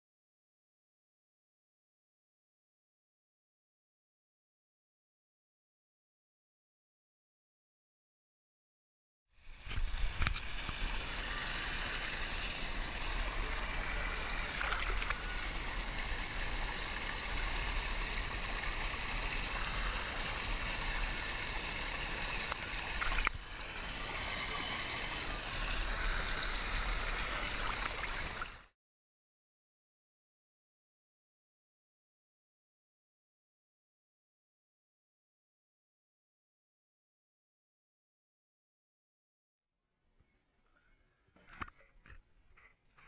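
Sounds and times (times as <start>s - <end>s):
water lapping and gurgling: 9.6s - 28.7s.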